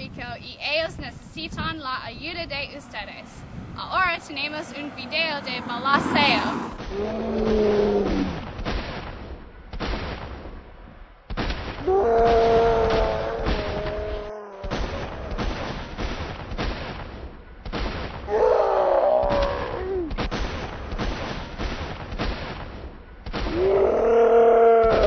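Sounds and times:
rapid gunshots: 0:07.4 - 0:13.9, 0:14.6 - 0:18.3, 0:19.3 - 0:23.7.

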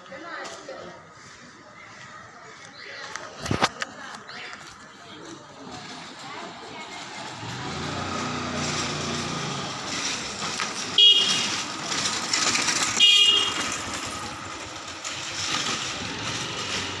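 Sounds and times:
street traffic noise: 0:00.0 - 0:17.0
engine humming low: 0:05.4 - 0:17.0
vehicle horn toots: 0:10.9 - 0:11.6, 0:12.9 - 0:13.9.

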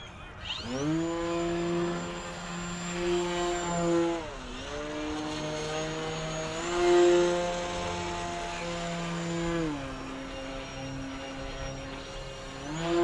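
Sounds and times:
high motor whine: 0:00.0 - 0:13.0
model plane propeller: 0:00.0 - 0:13.0.

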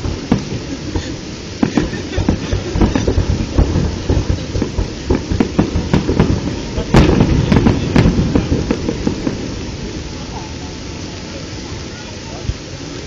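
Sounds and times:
firework shells bursting: 0:00.0 - 0:11.8.

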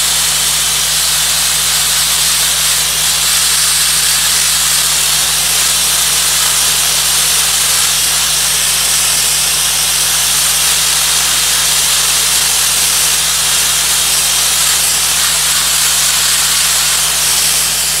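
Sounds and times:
blaster nozzle spraying hiss: 0:00.0 - 0:18.0.

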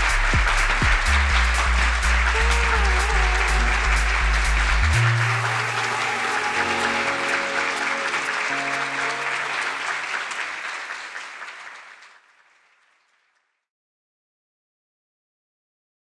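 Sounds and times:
music with long held notes: 0:00.0 - 0:10.8
audience applauding: 0:00.0 - 0:13.4.

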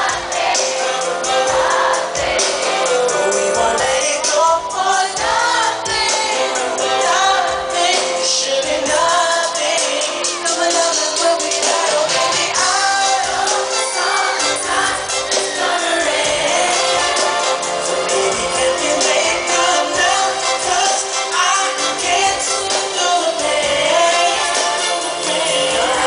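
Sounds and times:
man singing with live band: 0:02.8 - 0:26.0.

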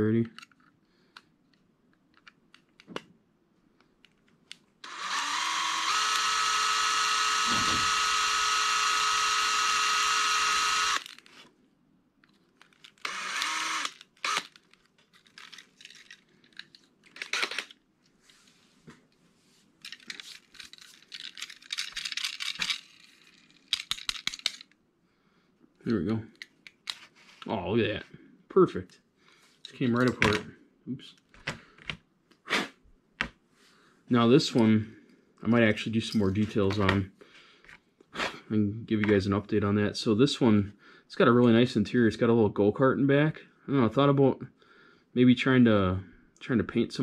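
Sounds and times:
cordless drill whining: 0:04.8 - 0:11.2, 0:13.0 - 0:14.5.

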